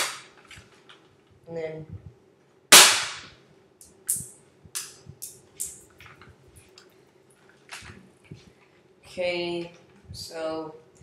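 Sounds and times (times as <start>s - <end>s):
airsoft gun shot crack: 2.7s - 3.3s.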